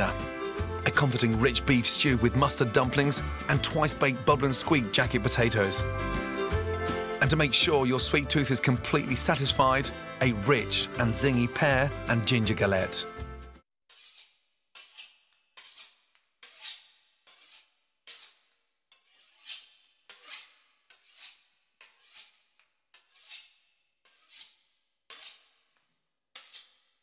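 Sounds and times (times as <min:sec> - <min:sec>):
knife sawing through pastry and meat: 0:13.9 - 0:27.0.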